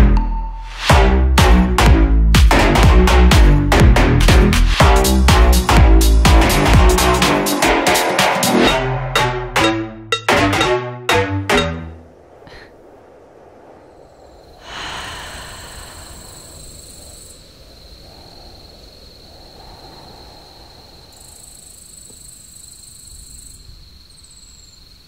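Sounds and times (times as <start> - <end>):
high-pitched tone: 8.6 - 12.0.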